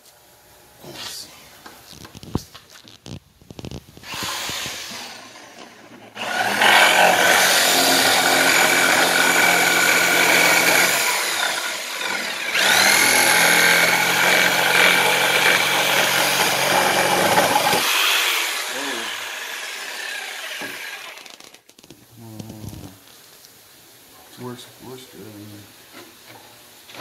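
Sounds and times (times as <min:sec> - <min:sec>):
jigsaw sawing wood: 0:04.0 - 0:21.6.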